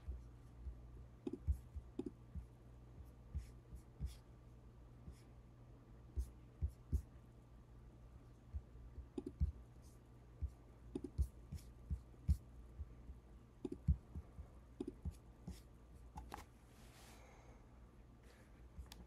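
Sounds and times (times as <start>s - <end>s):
computer mouse clicking: 9.1s - 9.4s, 13.6s - 13.9s.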